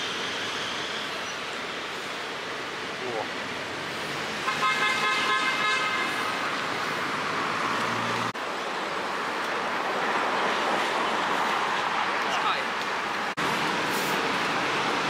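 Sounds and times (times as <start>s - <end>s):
cars driving past: 3.5s - 15.0s
car horn: 4.4s - 6.3s.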